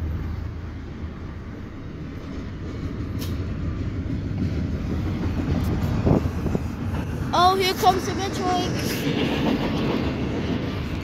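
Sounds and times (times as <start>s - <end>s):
muffled freight train rumble: 0.0s - 11.0s.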